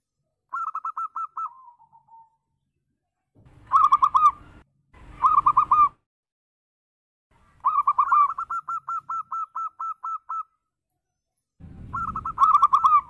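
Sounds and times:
dove cooing: 0.5s - 2.4s, 3.7s - 4.6s, 5.2s - 6.0s, 7.6s - 10.5s, 11.8s - 13.0s.

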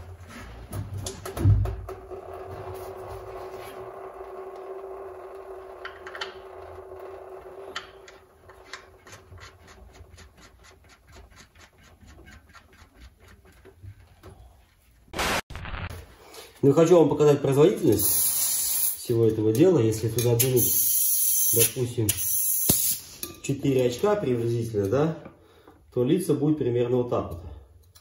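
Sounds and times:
thump: 1.4s - 1.8s.

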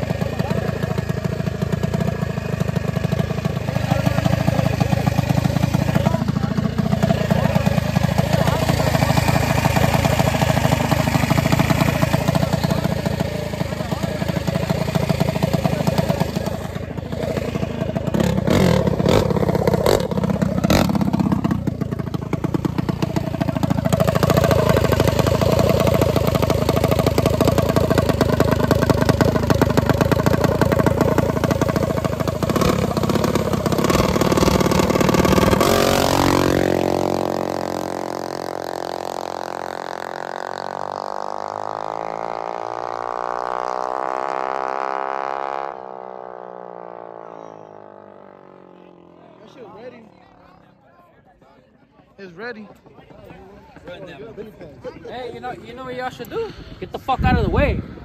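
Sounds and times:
minibike engines revving: 0.0s - 50.6s.

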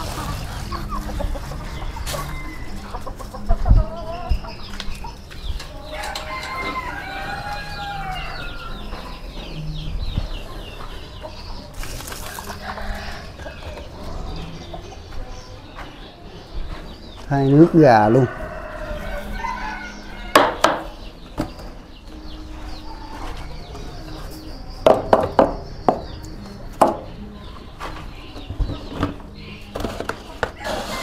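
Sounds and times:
chickens clucking: 0.0s - 31.0s
sharp knocks: 20.3s - 20.9s, 24.8s - 26.1s.

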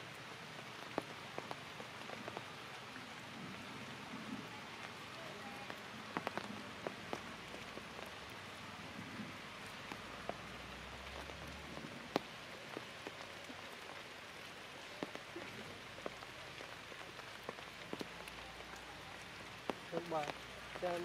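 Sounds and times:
light rain on leaves: 0.0s - 21.0s
drops ticking: 19.6s - 21.0s.

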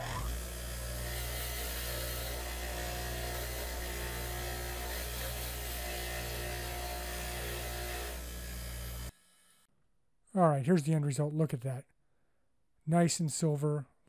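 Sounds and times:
wire wheel hissing on metal: 0.0s - 9.2s
bench grinder motor hum: 0.0s - 9.6s.

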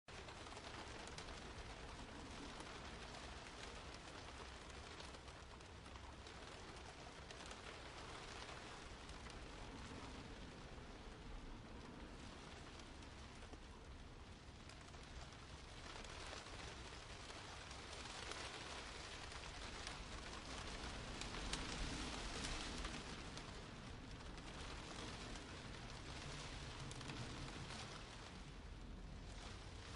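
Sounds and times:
rain hiss: 0.1s - 29.9s
raindrop ticks: 0.1s - 29.9s.

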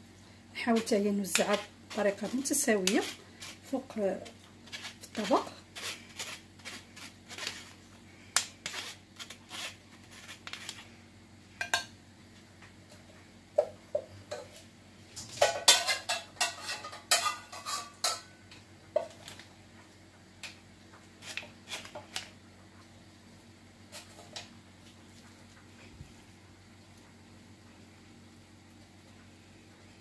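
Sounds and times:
spatula scraping and tapping dishes: 0.8s - 7.7s, 15.4s - 18.3s.

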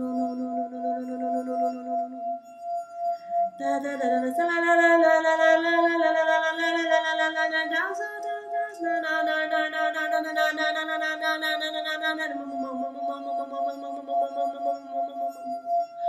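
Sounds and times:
woman singing wordless tones: 0.0s - 2.4s, 3.5s - 16.0s.

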